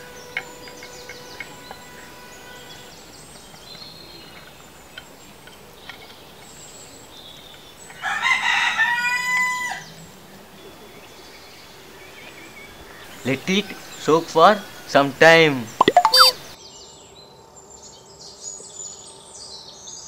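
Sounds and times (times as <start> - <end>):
rooster crowing: 8.0 - 9.8.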